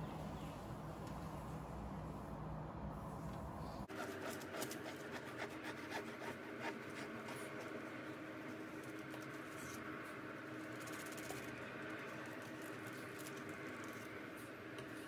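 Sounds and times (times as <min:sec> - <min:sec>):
bread knife sawing crusty bread: 0:03.9 - 0:07.8.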